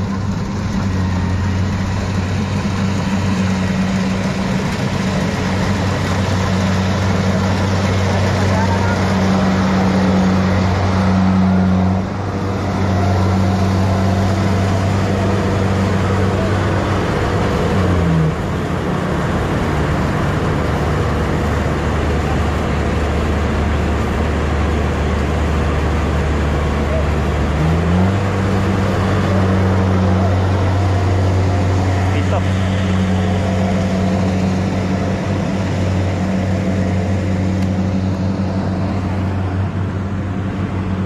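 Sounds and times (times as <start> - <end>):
harvester engine droning: 0.0 - 41.0.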